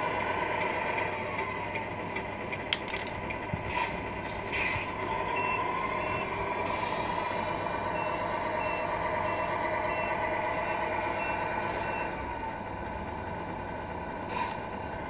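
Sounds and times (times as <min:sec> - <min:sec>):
simulated truck engine drone: 0:00.0 - 0:15.0
reversing alarm beeps: 0:04.6 - 0:12.2.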